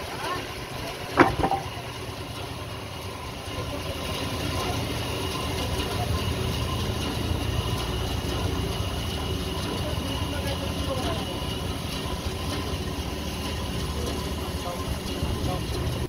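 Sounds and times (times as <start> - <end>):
sawmill machinery rumble: 0.0 - 16.0.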